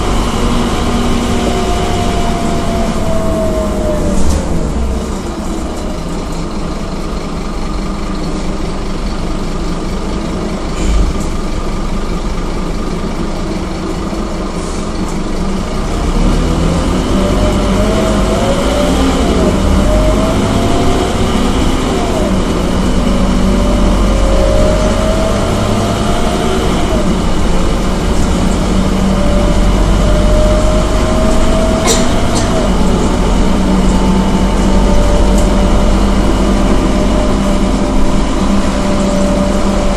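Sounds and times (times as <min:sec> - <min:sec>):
bus diesel engine whining: 0:00.0 - 0:39.9.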